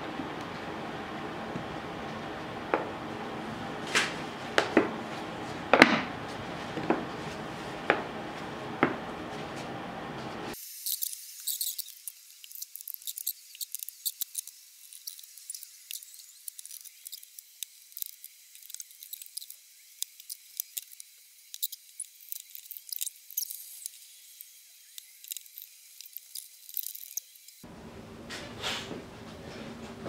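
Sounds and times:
paper handling: 0:03.8 - 0:08.6.

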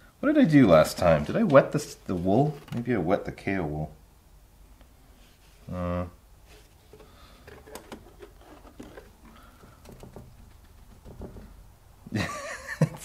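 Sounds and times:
plastic bottle clicks and rustles: 0:06.8 - 0:11.6.

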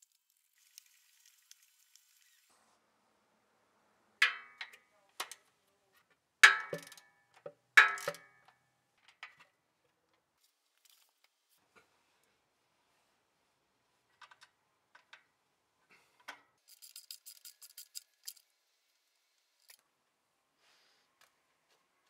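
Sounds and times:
socket ratchet clanking on metal: 0:06.5 - 0:07.1.

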